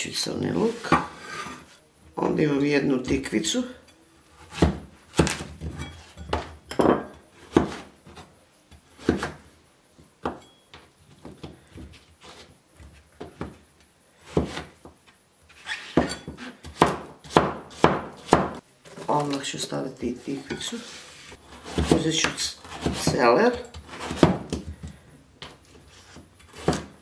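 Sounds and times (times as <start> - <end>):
cleaver chopping on wooden board: 4.5 - 5.5, 15.9 - 18.6, 21.6 - 25.0, 26.5 - 26.9.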